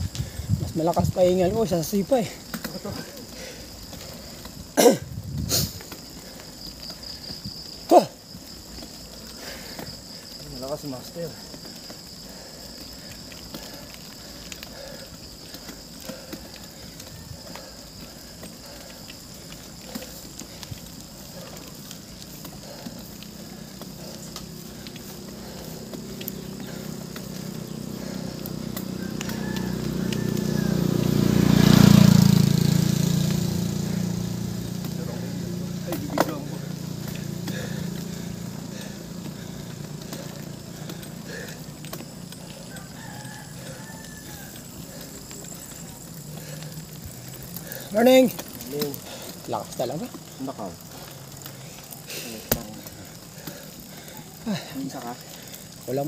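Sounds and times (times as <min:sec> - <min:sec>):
hard breathing: 0:00.0 - 0:00.7, 0:02.2 - 0:31.1, 0:33.3 - 0:56.0
vehicle engine passing by: 0:12.3 - 0:56.0.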